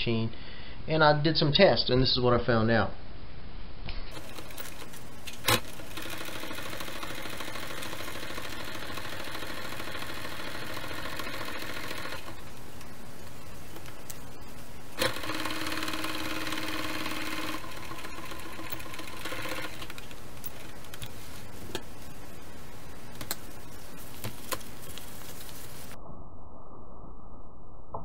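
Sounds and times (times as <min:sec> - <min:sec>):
sewing machine stitching: 0:04.1 - 0:21.8.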